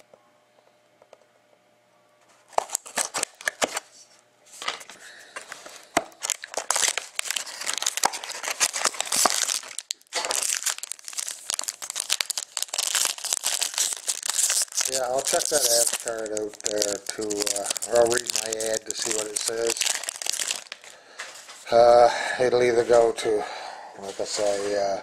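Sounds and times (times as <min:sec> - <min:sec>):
foil card pack handled: 0:02.4 - 0:03.9, 0:04.5 - 0:21.7
plastic wrap crackling: 0:02.5 - 0:03.8, 0:04.6 - 0:21.7.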